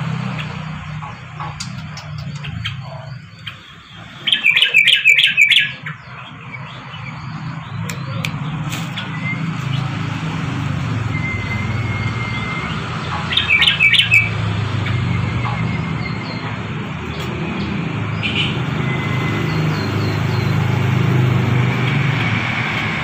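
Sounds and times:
bird chattering: 0:00.4 - 0:09.9, 0:12.4 - 0:20.8.

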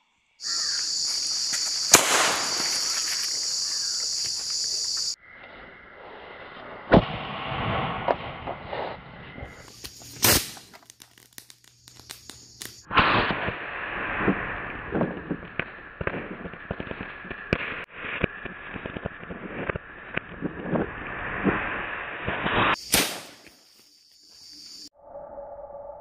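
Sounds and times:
firework rockets hissing and crackling: 0:01.2 - 0:05.2, 0:06.0 - 0:23.6
firework sharp crack: 0:01.5 - 0:04.0, 0:06.9 - 0:20.4, 0:21.4 - 0:23.6.

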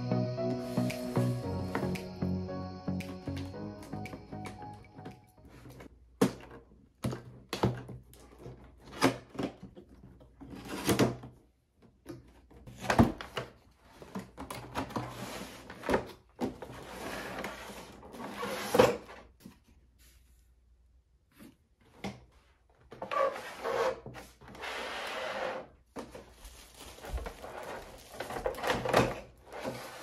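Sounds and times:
packaging sliding and rustling: 0:26.0 - 0:30.0.

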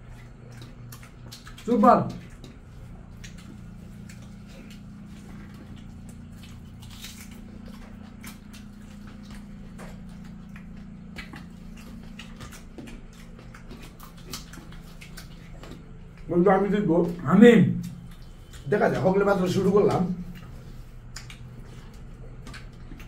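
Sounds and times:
chewing and lip smacks: 0:00.0 - 0:23.0
steady low hum: 0:00.0 - 0:23.0.

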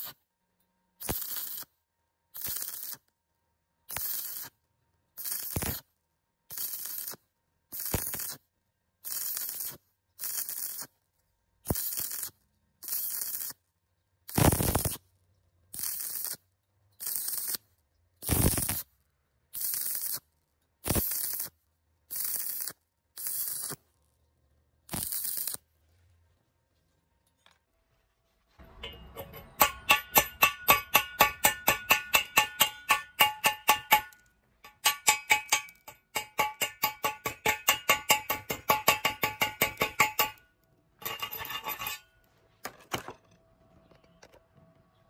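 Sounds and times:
welding arc crackling: 0:01.0 - 0:01.7, 0:02.4 - 0:03.0, 0:03.9 - 0:04.6, 0:05.2 - 0:05.8, 0:06.5 - 0:08.4, 0:09.1 - 0:10.9, 0:11.7 - 0:13.6, 0:14.3 - 0:15.0, 0:15.8 - 0:16.4, 0:17.0 - 0:17.6, 0:18.2 - 0:18.9, 0:20.8 - 0:21.5, 0:22.1 - 0:23.8, 0:24.9 - 0:25.6.

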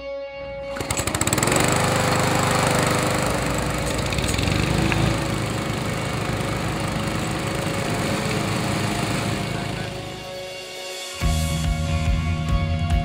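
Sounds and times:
lawn mower engine running: 0:00.5 - 0:10.6.

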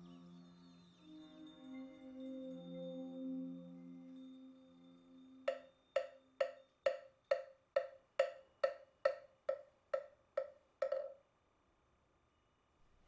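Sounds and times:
wooden fish knocks: 0:05.5 - 0:11.2.

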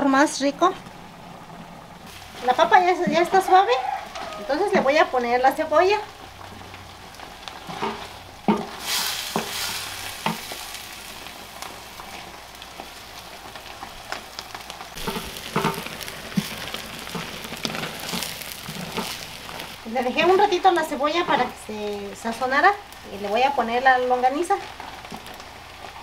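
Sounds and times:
meat and potatoes sizzling: 0:00.0 - 0:26.0
wooden spoon knocking pot: 0:15.0 - 0:16.5.

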